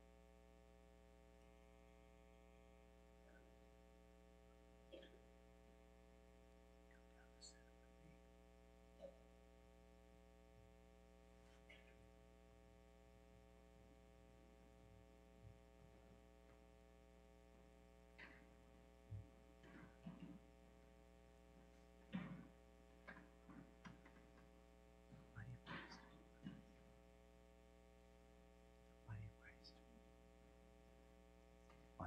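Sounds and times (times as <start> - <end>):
electrical mains hum: 0.0 - 32.0
knocks and rustles of people moving: 17.8 - 27.6.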